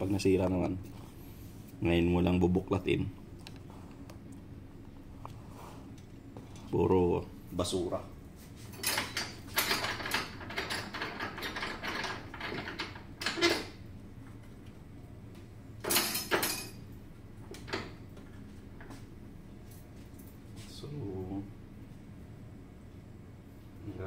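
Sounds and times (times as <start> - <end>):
metal stand rattling and clicking: 8.8 - 13.8.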